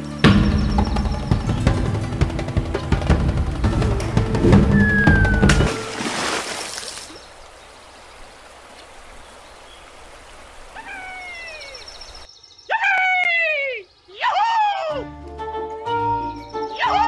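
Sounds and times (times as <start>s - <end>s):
water splash: 3.7s - 12.3s
gentle stream hiss: 4.1s - 12.3s
loud downward gliding call: 4.4s - 6.0s
faint chirps: 8.8s - 14.6s.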